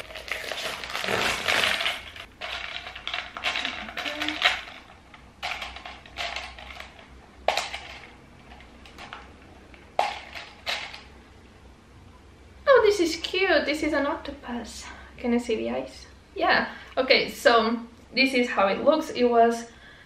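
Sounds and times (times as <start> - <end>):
plastic bag rustling: 0.0 - 9.1.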